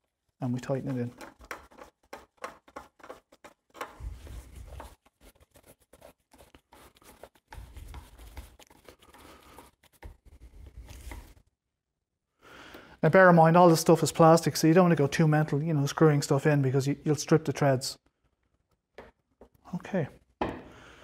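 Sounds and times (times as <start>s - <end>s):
tool clicking and scraping plastic: 0.7s - 5.0s.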